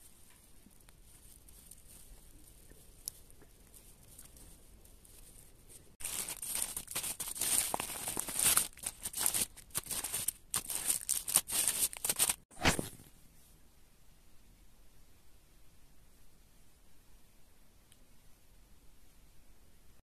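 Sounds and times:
packaging tearing and crinkling: 6.0s - 12.8s.

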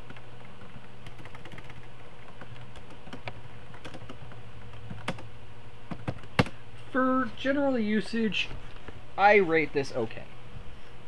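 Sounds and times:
computer keyboard typing: 0.0s - 5.3s, 5.9s - 6.5s
low steady hum: 0.0s - 11.0s.

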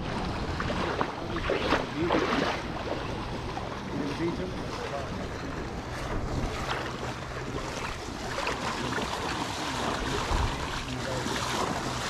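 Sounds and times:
flowing river water: 0.0s - 12.0s
low steady hum: 0.0s - 12.0s
wind on microphone: 0.0s - 12.0s.

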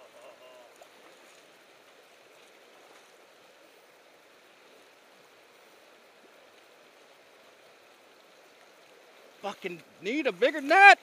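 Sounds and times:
fast-flowing river rushing: 0.0s - 11.0s.

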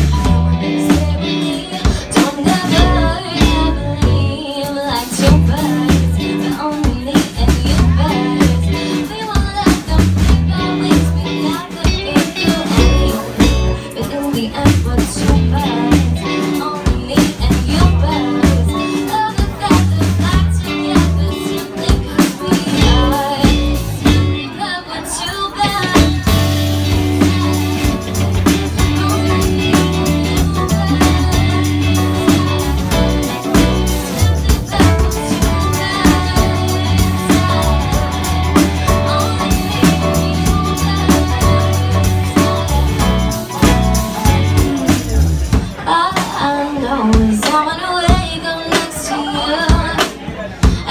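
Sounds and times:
electric bass: 0.0s - 24.6s, 25.6s - 45.8s
drum kit: 0.0s - 24.7s, 25.4s - 50.9s
electric guitar: 0.0s - 50.9s
stage keyboard: 0.0s - 50.9s
woman singing: 0.0s - 50.9s.

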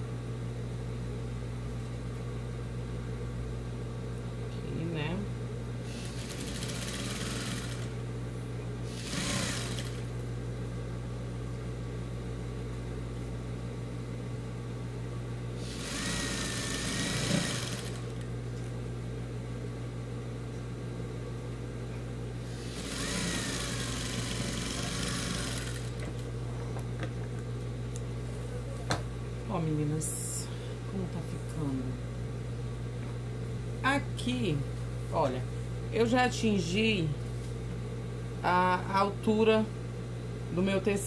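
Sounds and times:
sewing machine stitching: 5.9s - 7.9s, 8.9s - 10.0s, 15.7s - 18.2s, 22.7s - 26.0s.

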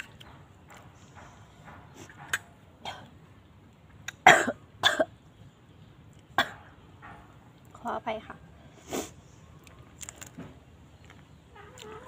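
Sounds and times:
woman coughing: 4.3s - 5.1s.

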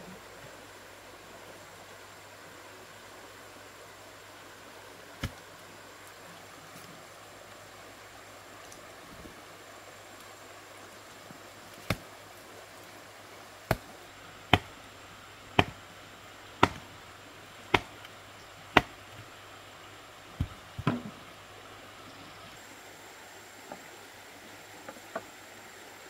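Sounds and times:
hard wood being struck: 14.5s - 14.8s, 15.6s - 15.8s, 16.6s - 16.9s, 17.7s - 18.0s, 18.8s - 19.0s.

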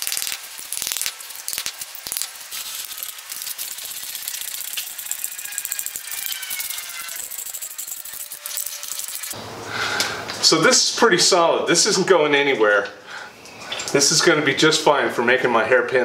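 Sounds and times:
ratchet wrench clicking: 0.2s - 9.4s
squeak: 4.8s - 9.4s.

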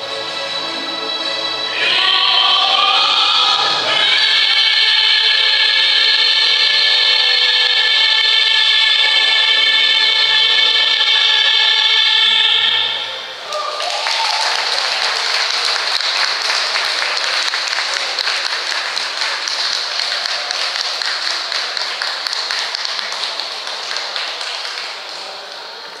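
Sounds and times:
audience applauding: 13.4s - 26.0s.

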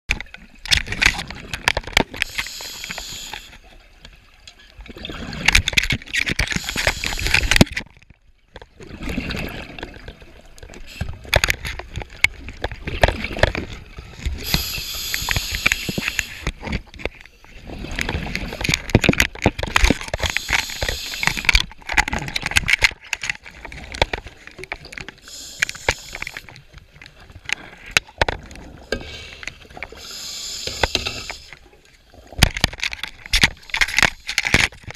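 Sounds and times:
regulator hiss: 2.3s - 3.5s, 20.3s - 21.5s, 25.3s - 26.4s, 30.0s - 31.5s
exhaled bubbles rushing: 4.8s - 5.8s, 8.7s - 10.5s, 17.6s - 19.0s.

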